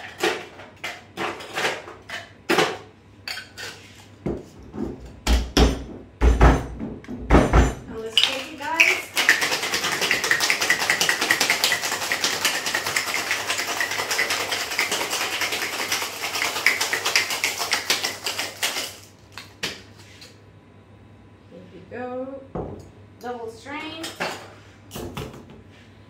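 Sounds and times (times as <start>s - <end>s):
ice rattling in cocktail shaker: 8.1s - 19.1s.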